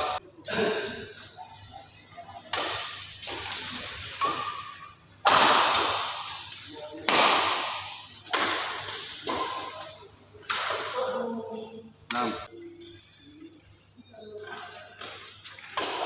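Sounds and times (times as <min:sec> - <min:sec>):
rackets hitting shuttlecock echoing: 0:02.3 - 0:11.8, 0:14.4 - 0:16.0.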